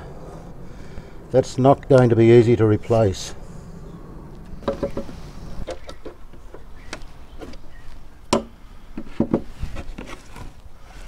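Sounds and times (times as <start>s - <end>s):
hand tools knocking on wood: 8.3s - 9.5s.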